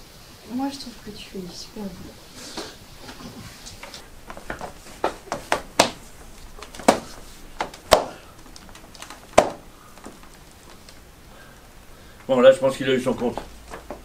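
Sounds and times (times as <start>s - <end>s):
mop thudding on body: 4.2s - 10.3s.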